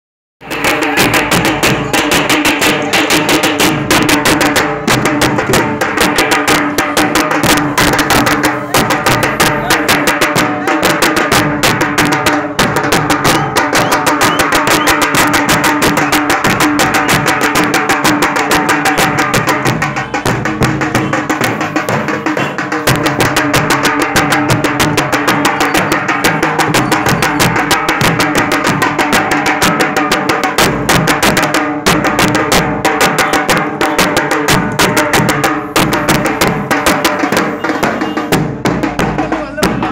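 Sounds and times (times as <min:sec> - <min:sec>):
fast steady drumming: 0:00.4 - 0:39.9.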